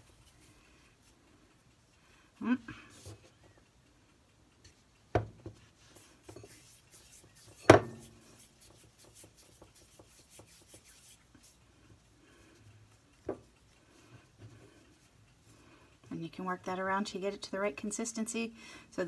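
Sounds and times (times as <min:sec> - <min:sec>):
hands kneading soft dough: 0:00.0 - 0:01.9, 0:05.5 - 0:16.8.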